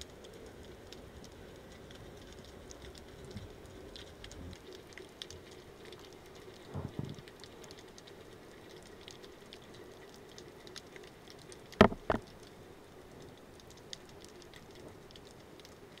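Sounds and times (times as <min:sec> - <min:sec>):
faint steady hum: 0:00.0 - 0:16.0
underwater crackle of tiny clicks: 0:00.0 - 0:16.0
soft low thump: 0:06.7 - 0:07.2, 0:11.8 - 0:12.2
sharp knocks: 0:11.8 - 0:12.2.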